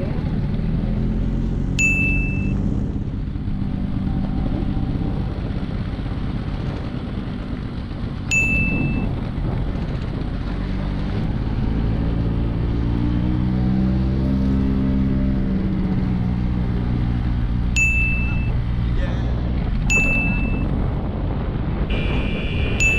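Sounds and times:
horn beeps: 1.8s - 2.6s, 8.3s - 9.1s, 17.8s - 18.6s, 19.9s - 20.7s, 21.9s - 22.9s
scooter engine running: 1.8s - 10.6s, 17.8s - 18.6s, 19.8s - 20.7s.

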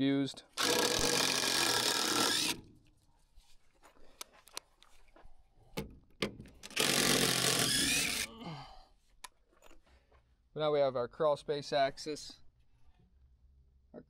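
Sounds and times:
impact driver backing out screw: 0.6s - 2.6s, 6.2s - 8.3s
knocks and clicks of tool handling: 5.7s - 6.8s.

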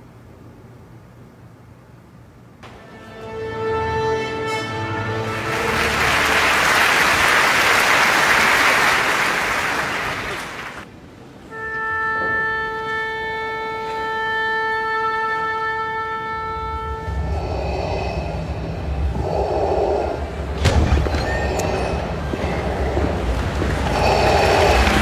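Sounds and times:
held woodwind note: 2.6s - 6.4s, 11.5s - 19.0s
audience applause: 5.1s - 10.9s, 21.5s - 25.0s.

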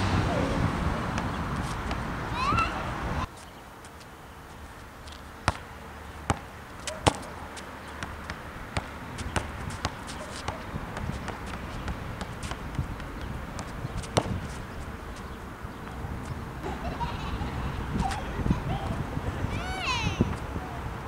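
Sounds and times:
low wind rumble: 0.0s - 5.0s, 8.1s - 21.0s
basketball bouncing on asphalt: 5.0s - 16.4s.

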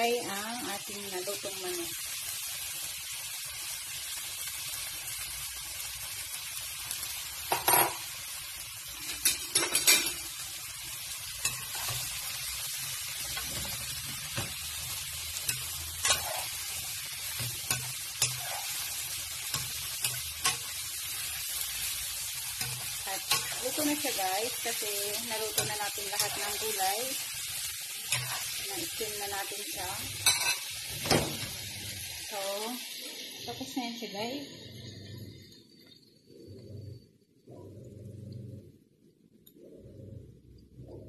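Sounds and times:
food sizzling in a wok: 0.0s - 37.0s
spatula scraping a pan: 11.3s - 29.6s.

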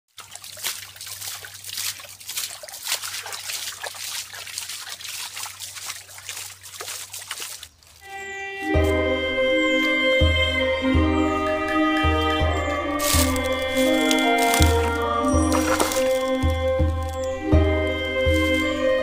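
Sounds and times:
hands splashing in stream: 0.1s - 8.1s, 11.4s - 19.0s
music: 8.0s - 19.0s.

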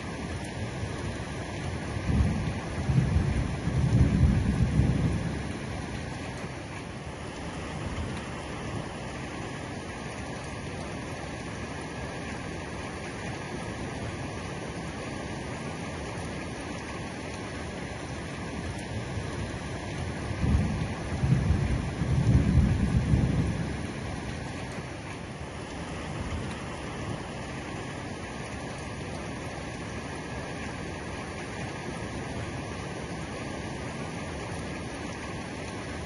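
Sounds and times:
heavy rain on roof: 0.0s - 36.0s
thunder rumbling: 2.0s - 6.0s, 20.1s - 24.3s.

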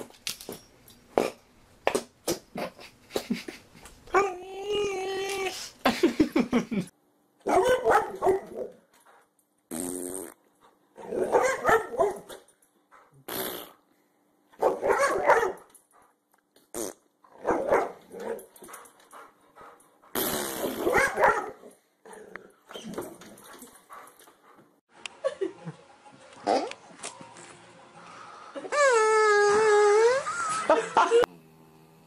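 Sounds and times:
dog barking and growling: 7.4s - 8.8s, 11.0s - 13.2s, 14.6s - 15.7s, 17.3s - 18.7s, 20.6s - 24.0s.

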